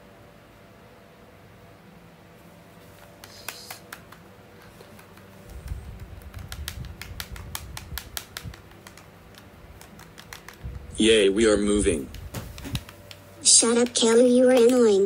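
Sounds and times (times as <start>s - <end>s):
rapid irregular clicking: 3.2s - 10.8s.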